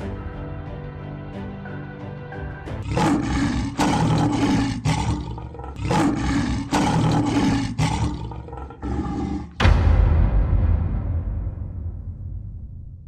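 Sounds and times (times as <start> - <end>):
lion roaring: 2.8 - 9.6.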